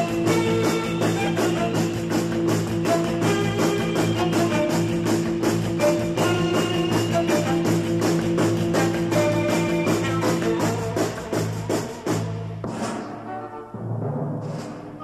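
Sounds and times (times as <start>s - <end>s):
rock background music: 0.0s - 15.0s.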